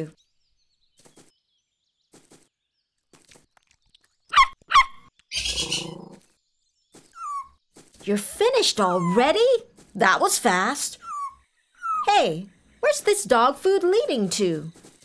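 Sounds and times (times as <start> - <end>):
cartoon squeaks falling in pitch: 7.2 - 7.6.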